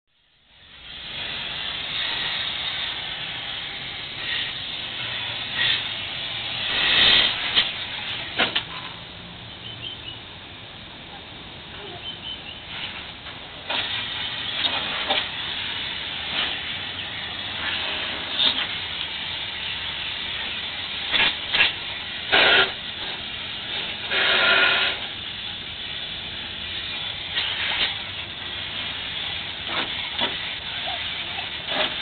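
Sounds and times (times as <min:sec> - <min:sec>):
hose nozzle spraying water on glass: 0:00.9 - 0:08.6, 0:13.7 - 0:26.1, 0:26.7 - 0:32.0.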